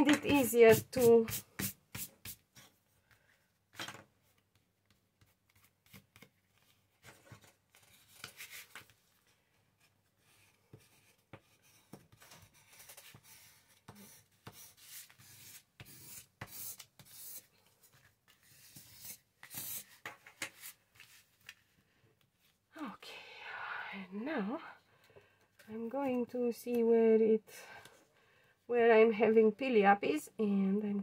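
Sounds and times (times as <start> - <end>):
paper rustling and scraping: 5.5 - 9.3.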